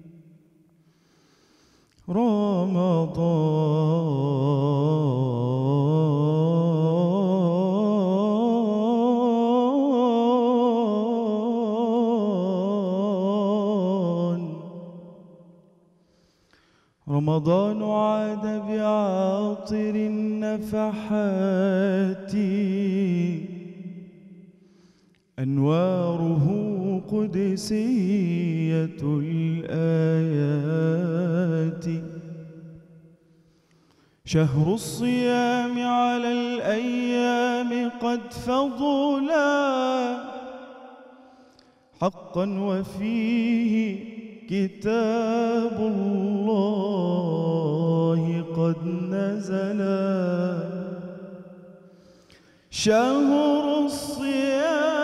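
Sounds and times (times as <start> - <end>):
man singing unaccompanied: 2.1 - 15.3, 17.1 - 24.3, 25.4 - 32.9, 34.3 - 40.9, 42.0 - 51.9, 52.7 - 55.0.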